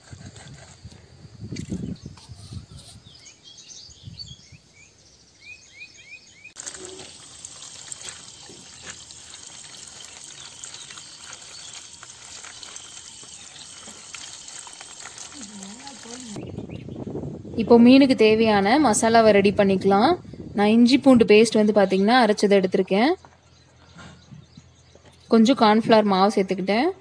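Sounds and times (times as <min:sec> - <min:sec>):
water pouring and splashing: 0:06.6 - 0:16.4
bird chirps: 0:08.4 - 0:14.0.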